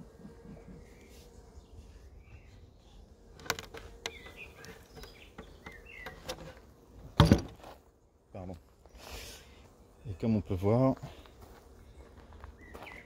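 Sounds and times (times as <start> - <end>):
birds chirping: 0.0 - 7.0, 8.4 - 13.0
honeybees humming: 0.0 - 13.0.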